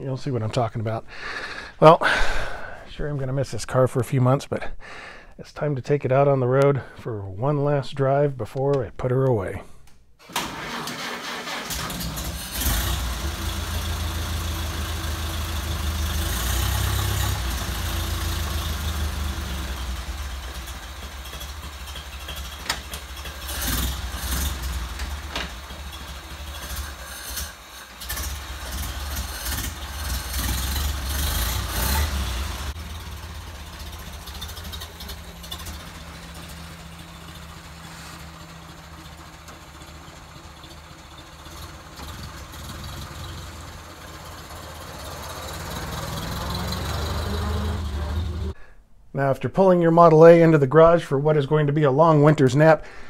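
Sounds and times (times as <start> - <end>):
car engine idling: 10.6 - 48.6.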